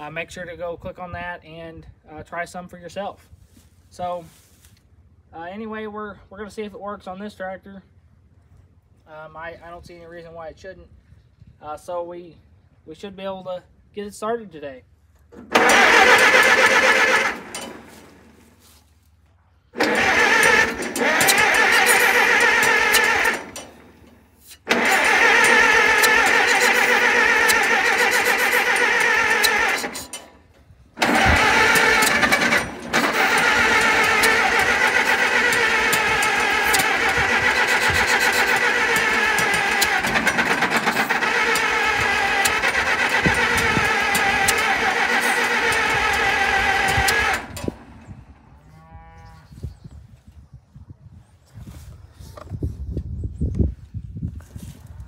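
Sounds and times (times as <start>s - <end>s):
tractor engine cranking over: 15.3s - 19.0s, 19.6s - 48.4s.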